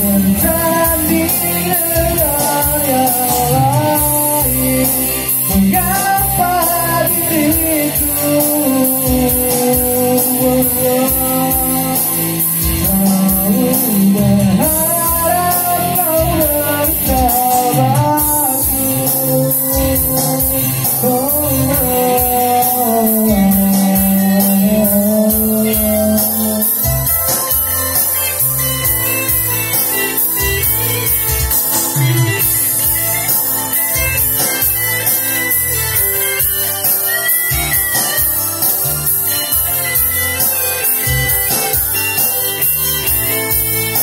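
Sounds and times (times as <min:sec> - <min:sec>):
man singing: 0:00.0 - 0:27.3
electric guitar: 0:00.0 - 0:44.0
keyboard: 0:00.0 - 0:44.0.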